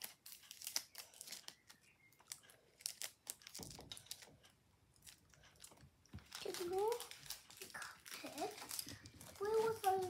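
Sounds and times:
faint crinkling and clicks: 0.0s - 10.0s.

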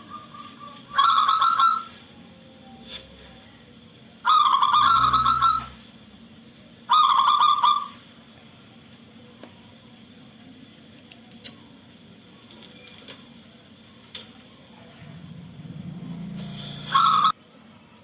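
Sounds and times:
dove cooing: 0.0s - 2.2s, 4.2s - 5.9s, 6.8s - 8.0s, 16.6s - 17.4s.

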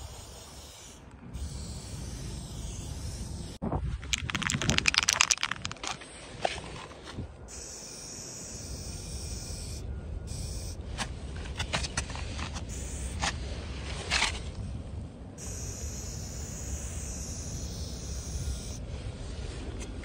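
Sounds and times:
spray can ball rattling: 4.0s - 6.8s.

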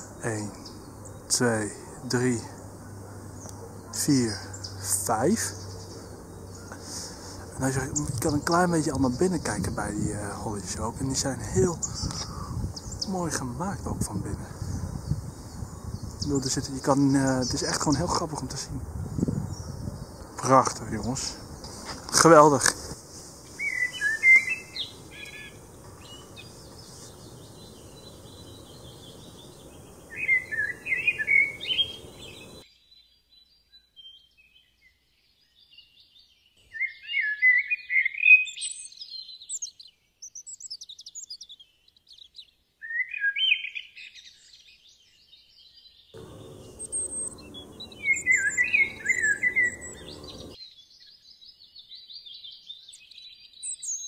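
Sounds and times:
faint steady hiss: 0.0s - 19.4s, 20.2s - 32.7s, 46.2s - 50.6s
songbird warbling and chirping: 0.0s - 54.0s.

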